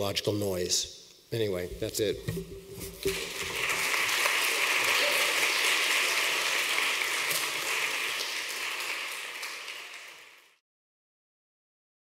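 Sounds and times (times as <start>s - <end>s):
audience applauding: 3.0s - 10.6s.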